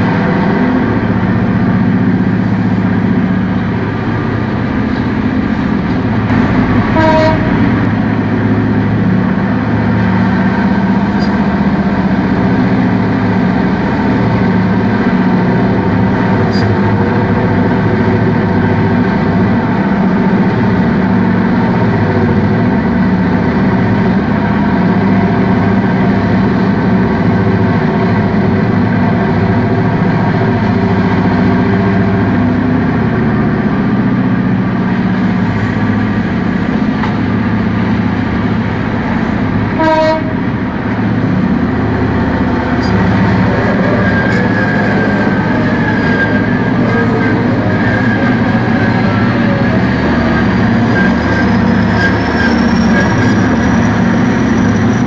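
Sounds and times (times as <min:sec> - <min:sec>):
heavy machine engines droning: 0:00.0 - 0:55.0.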